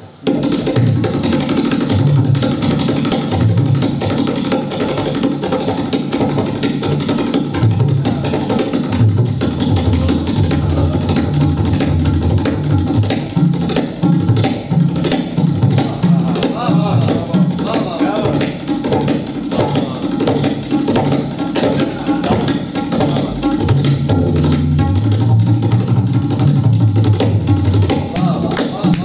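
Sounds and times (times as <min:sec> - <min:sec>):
rapid treble drum strokes: 0:00.0 - 0:29.0
tabla played fast: 0:00.0 - 0:29.0
bass drum booms: 0:00.2 - 0:29.0.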